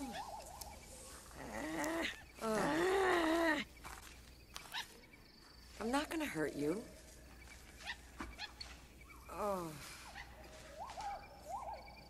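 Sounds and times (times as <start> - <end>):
animal calling: 0.0 - 3.8, 6.8 - 12.0.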